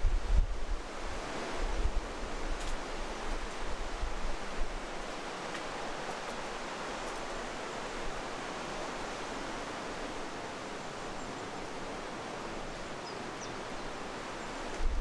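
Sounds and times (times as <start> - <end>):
rushing water: 0.0 - 15.0
wind buffeting microphone: 14.7 - 15.0.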